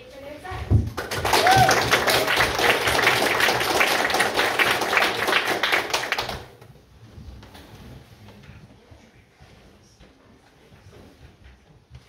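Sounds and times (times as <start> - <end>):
small audience applauding: 0.8 - 6.7.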